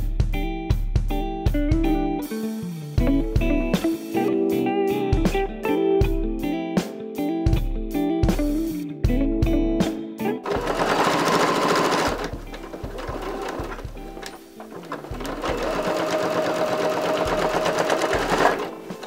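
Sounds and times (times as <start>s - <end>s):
sewing machine stitching: 10.5s - 19.0s.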